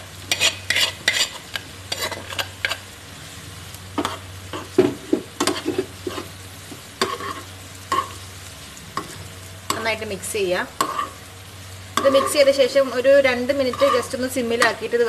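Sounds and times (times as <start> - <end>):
low sizzle from a pan: 0.0 - 15.0
spoon scraping a pan: 0.3 - 2.9, 4.0 - 6.4, 7.0 - 8.2, 10.7 - 11.2, 12.0 - 12.5, 13.5 - 14.8.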